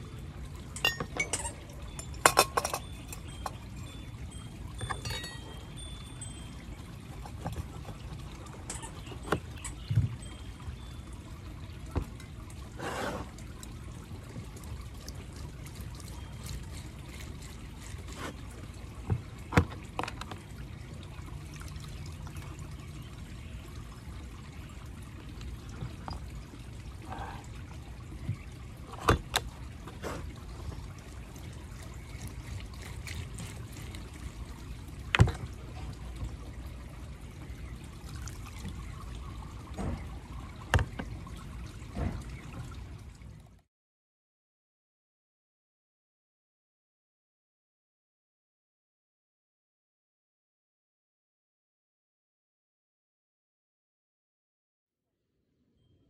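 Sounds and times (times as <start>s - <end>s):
metal strainer clinking on glass jar: 4.8s - 6.4s
juice pouring into jar: 24.6s - 37.0s.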